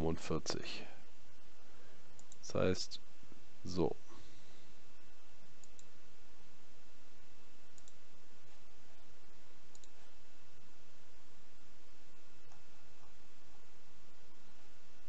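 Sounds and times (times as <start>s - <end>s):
microphone hiss: 0.0s - 15.0s
computer mouse clicks: 2.1s - 2.4s, 5.6s - 5.9s, 7.7s - 8.0s, 9.7s - 10.0s.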